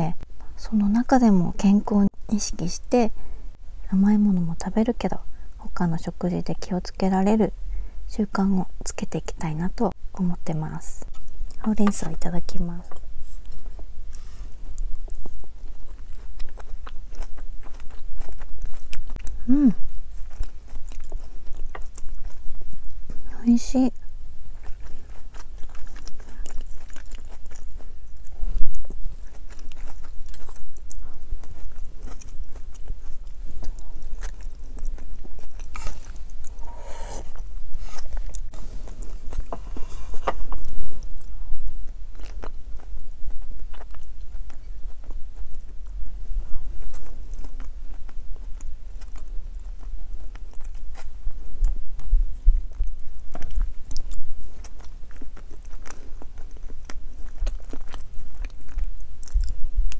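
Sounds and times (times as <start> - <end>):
person chewing food: 12.9 - 23.2, 24.0 - 59.9.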